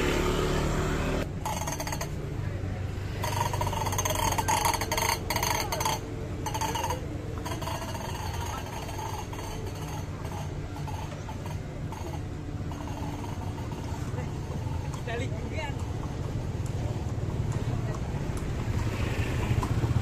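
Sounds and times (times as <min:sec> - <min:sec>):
faint distant sounds: 0:00.0 - 0:20.0.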